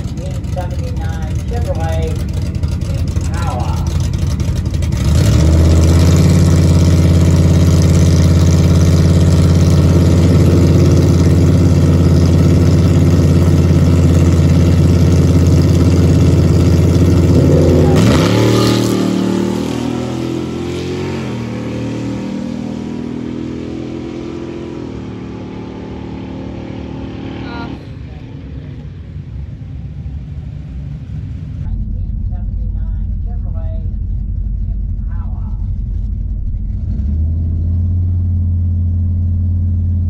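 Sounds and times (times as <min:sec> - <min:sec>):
car engine revving and accelerating: 0:00.0 - 0:27.9, 0:36.0 - 0:40.0.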